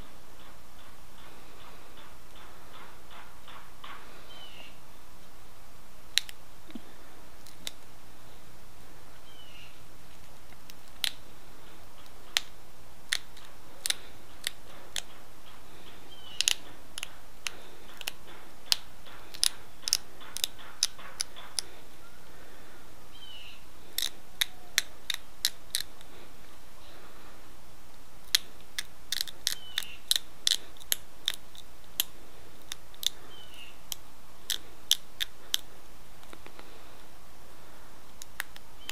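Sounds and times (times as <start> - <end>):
stone flakes snapping off: 28.2 - 33.2.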